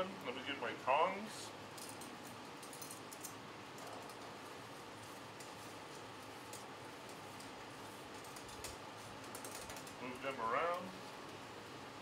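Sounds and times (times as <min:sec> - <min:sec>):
steady low hiss: 0:03.4 - 0:12.0.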